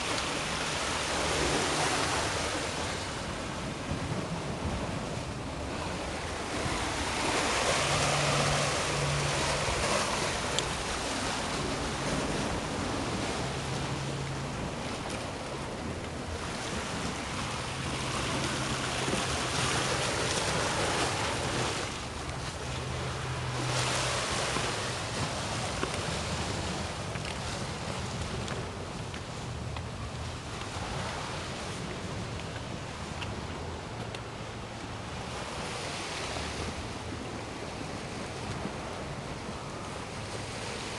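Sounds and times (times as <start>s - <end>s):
surf washing against rocks: 0.0s - 40.9s.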